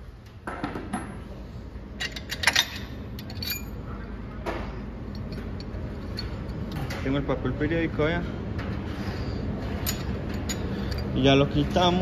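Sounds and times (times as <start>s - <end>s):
metallic clinks and knocks: 2.0s - 3.8s.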